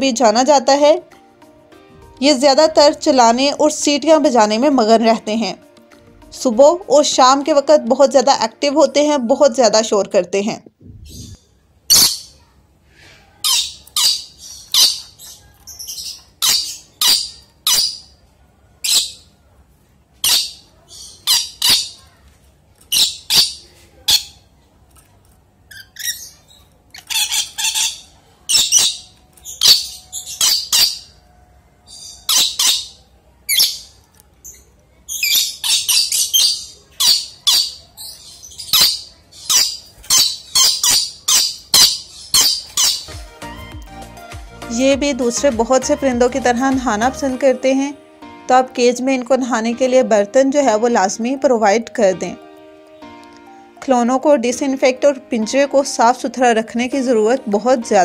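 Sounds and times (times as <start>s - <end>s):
parrot screeching calls: 11.1s - 12.3s, 13.4s - 18.1s, 20.2s - 22.0s, 27.0s - 31.2s, 31.8s - 33.8s, 35.1s - 43.1s.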